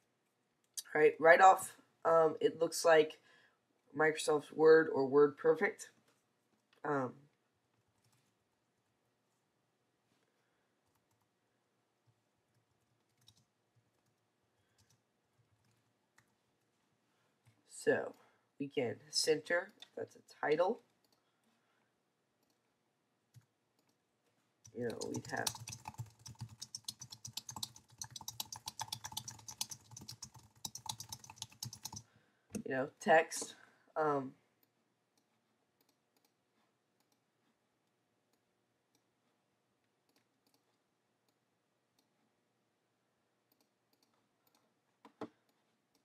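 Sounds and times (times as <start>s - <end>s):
keyboard keys clicking: 24.7s - 32.0s.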